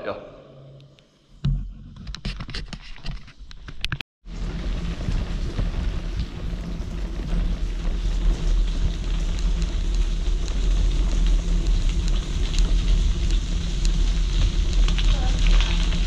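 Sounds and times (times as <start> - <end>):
wind noise on microphone: 3.9 - 16.0
tyres crackling on gravel: 4.4 - 16.0.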